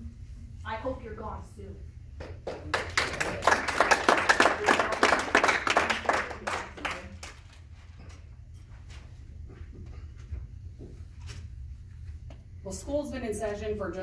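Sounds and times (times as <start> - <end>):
audience applause: 2.5 - 7.4.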